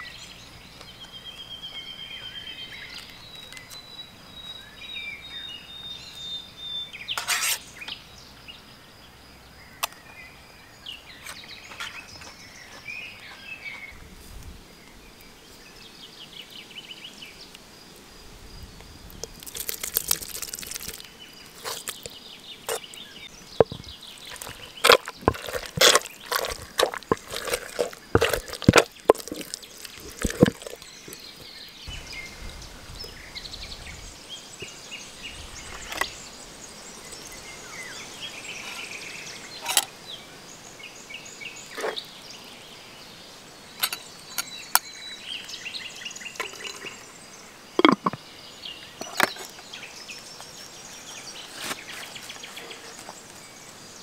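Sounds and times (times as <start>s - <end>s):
wooden masher pounding food: 23.6s - 31.2s
handling of food: 23.6s - 31.5s.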